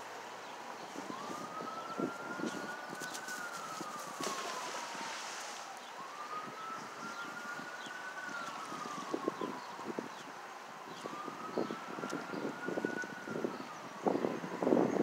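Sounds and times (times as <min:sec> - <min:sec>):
siren wailing: 0:01.0 - 0:15.0.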